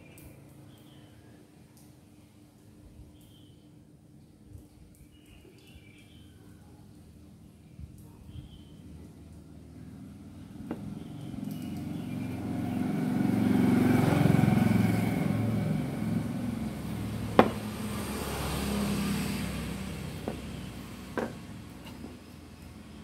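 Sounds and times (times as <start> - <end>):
motor vehicle passing: 9.9 - 23.0.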